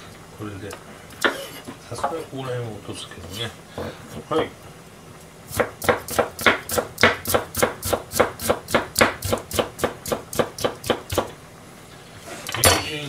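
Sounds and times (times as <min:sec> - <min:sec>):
knife chopping on cutting board: 0:05.5 - 0:11.3.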